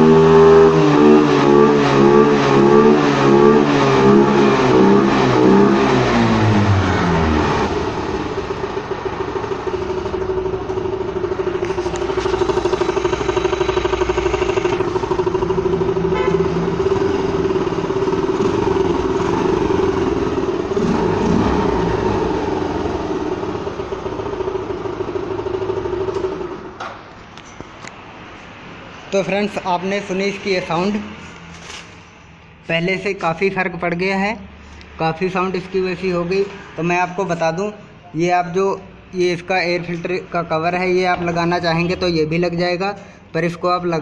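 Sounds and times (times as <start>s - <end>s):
scooter engine idling: 0.0s - 26.8s.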